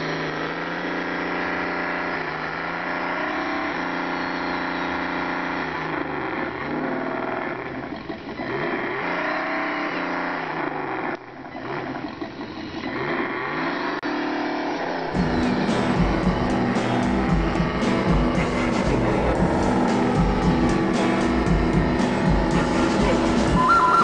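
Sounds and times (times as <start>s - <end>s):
toy truck motor whining: 0.0s - 18.0s, 22.5s - 24.0s
music: 15.2s - 24.0s.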